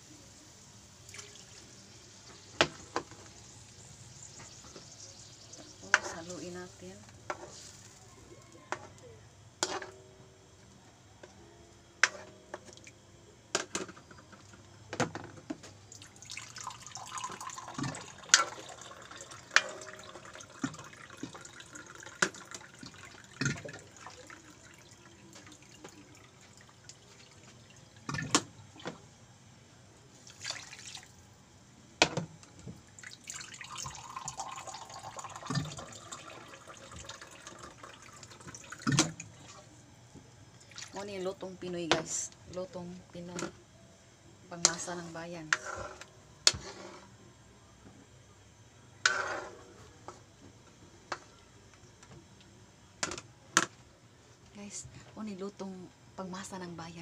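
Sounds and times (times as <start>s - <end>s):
faint liquid bubbling: 14.0s - 29.3s, 32.5s - 53.0s.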